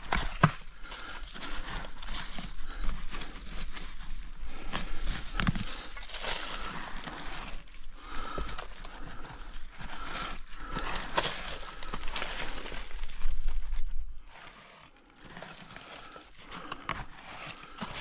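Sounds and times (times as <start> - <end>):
dry brush rustling and crackling: 0.0 - 18.0.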